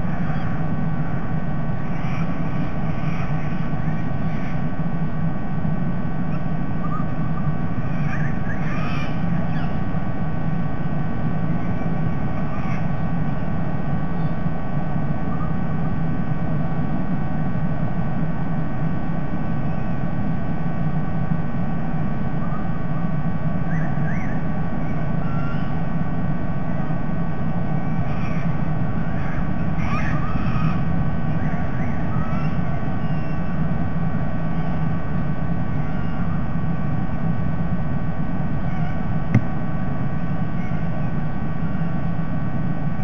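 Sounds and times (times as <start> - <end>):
faint bird calls: 0.0 - 5.5, 6.1 - 15.8, 19.3 - 20.2, 22.2 - 26.0, 26.7 - 33.8, 34.4 - 36.9, 38.5 - 42.3
faint hum: 0.0 - 43.0
low background rumble: 0.0 - 43.0.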